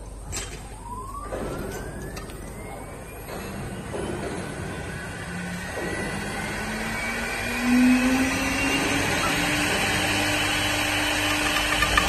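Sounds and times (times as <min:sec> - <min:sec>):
wood lathe motor whine: 0:04.6 - 0:12.0.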